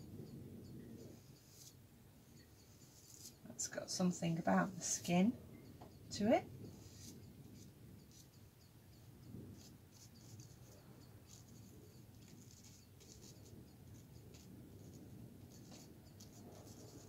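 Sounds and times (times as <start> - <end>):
paintbrush strokes on paper: 1.0 - 5.3, 6.1 - 8.5, 9.5 - 17.0.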